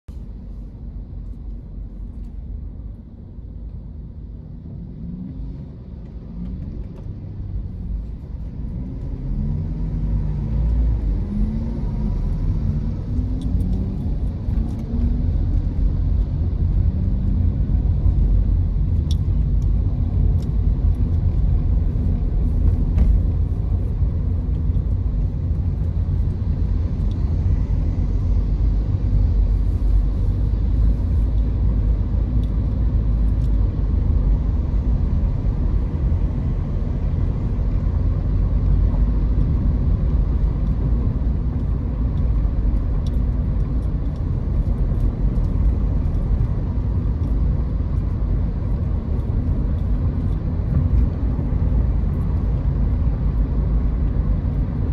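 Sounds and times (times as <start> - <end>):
car road and engine rumble: 0.0 - 54.9
light ticks: 38.6 - 51.1.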